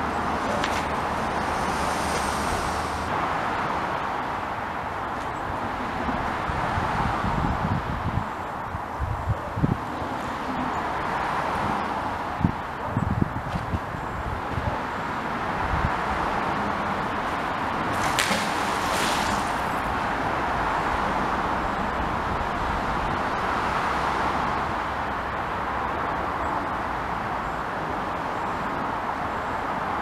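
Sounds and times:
road traffic hum: 0.0s - 30.0s
rope whooshing: 17.9s - 19.9s.

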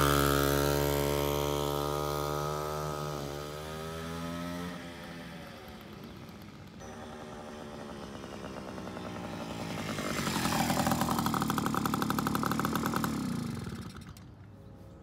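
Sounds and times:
moped two-stroke engine passing by: 0.0s - 14.4s.

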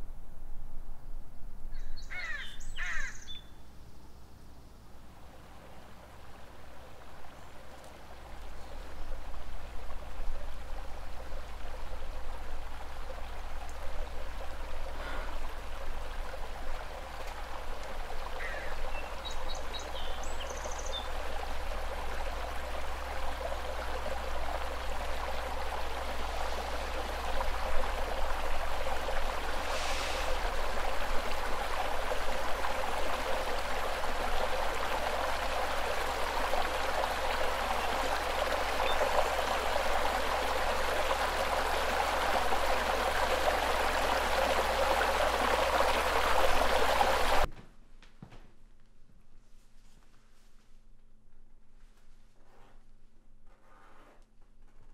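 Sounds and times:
steady rushing hiss: 21.2s - 47.5s.

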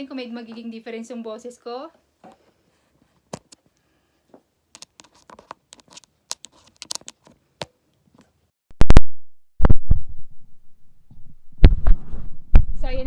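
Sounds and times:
handling clicks and rustles: 4.8s - 8.4s.

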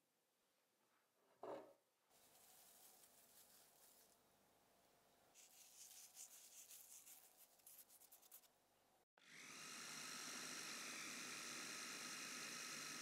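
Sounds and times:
food processor motor whining: 9.2s - 13.0s.

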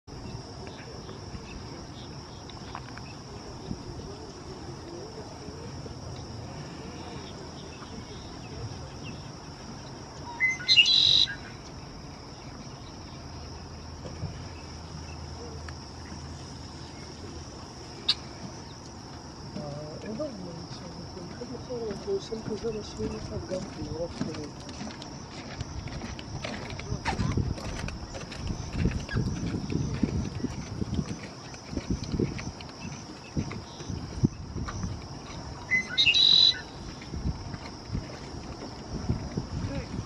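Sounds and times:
blackbird buzzy trill song: 10.2s - 11.6s, 35.6s - 37.0s.

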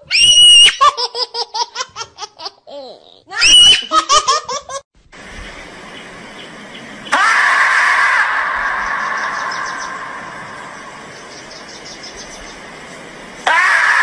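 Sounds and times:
person squealing and laughing: 0.1s - 1.0s, 2.9s - 4.8s
steady hiss: 5.0s - 7.2s, 8.4s - 13.5s.

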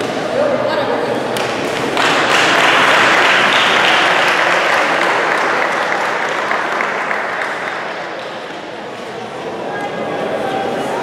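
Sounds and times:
audience applauding: 1.9s - 8.5s.

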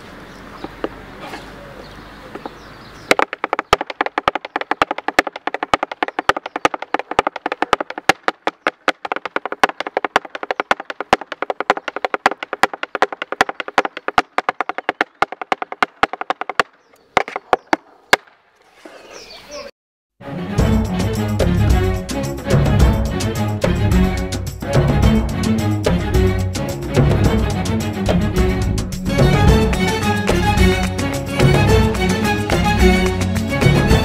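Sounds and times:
heeled shoes tapping on dance board: 3.1s - 17.5s.

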